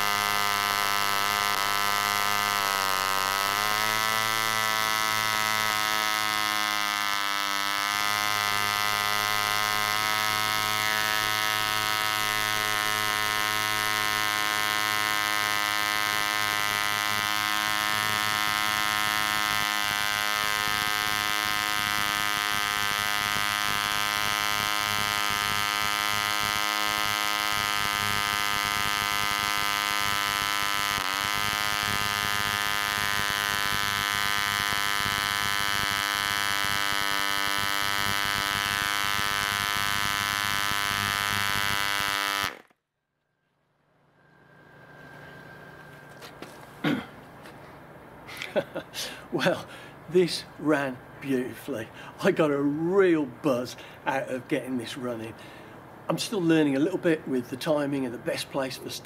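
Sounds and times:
model engine high buzz: 0.0 - 42.8, 43.9 - 47.6.

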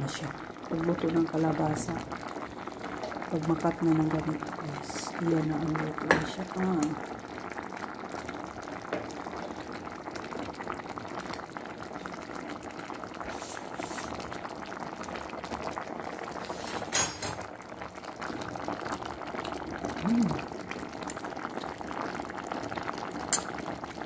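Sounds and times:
pot boiling and bubbling: 0.0 - 24.0.

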